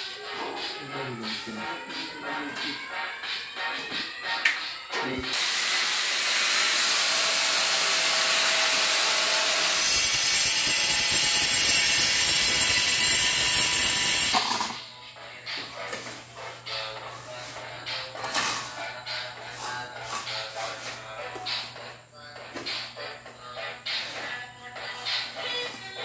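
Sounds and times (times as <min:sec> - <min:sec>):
power tool grinding ceramic tile: 0:05.4 - 0:14.4.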